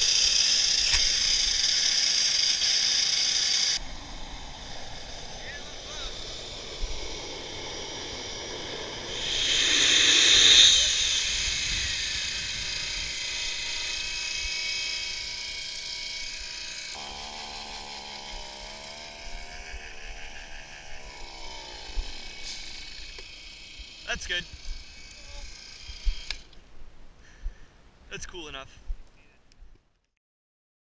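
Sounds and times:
high whine: 0:00.0 - 0:26.5
motor hum: 0:00.0 - 0:26.6
jet engine roar: 0:03.8 - 0:14.5.

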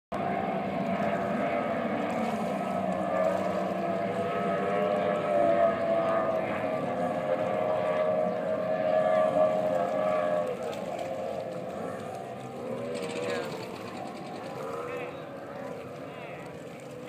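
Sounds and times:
motorboat engines droning: 0:00.2 - 0:17.0.

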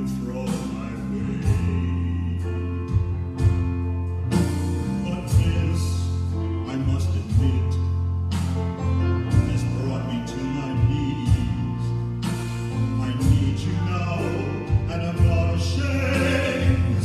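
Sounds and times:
man singing into microphone: 0:00.0 - 0:03.2, 0:04.9 - 0:08.0, 0:09.2 - 0:12.1, 0:12.8 - 0:17.0
live band playing: 0:00.0 - 0:17.0.

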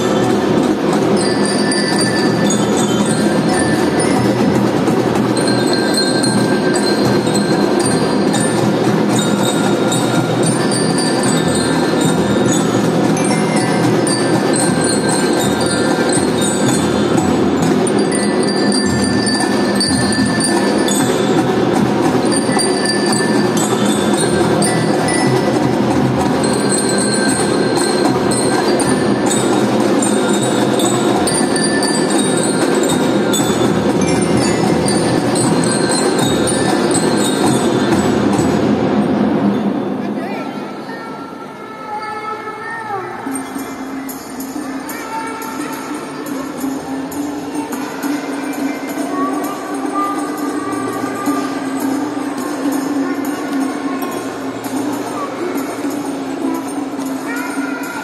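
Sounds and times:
bell lyres playing melody: 0:00.0 - 0:39.2, 0:43.2 - 0:58.0
marching drums: 0:00.0 - 0:40.2.

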